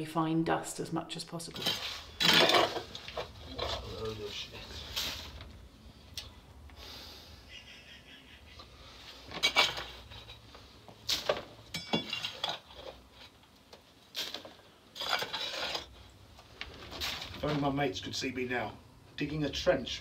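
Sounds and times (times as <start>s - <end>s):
trowel scraping stony soil: 15.0s - 15.9s.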